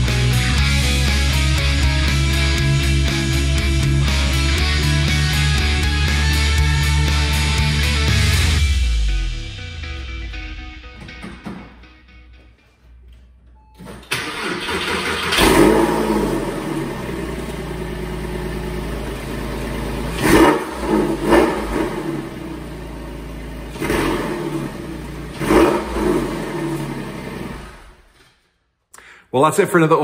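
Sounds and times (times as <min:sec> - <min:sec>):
engine revving: 0:00.0 - 0:10.6, 0:14.1 - 0:28.2
car engine idling: 0:00.0 - 0:11.6, 0:14.1 - 0:28.0
starter motor cranking: 0:14.0 - 0:16.0.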